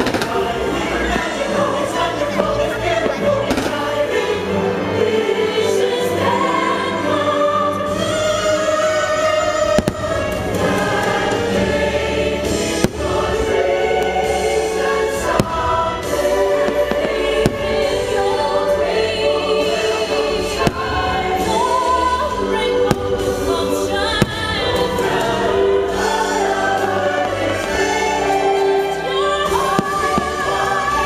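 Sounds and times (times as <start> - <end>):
orchestral music with choir: 0.0 - 31.0
firework bangs: 9.7 - 11.6, 12.4 - 13.6, 15.1 - 18.3, 20.5 - 21.9, 22.8 - 25.3.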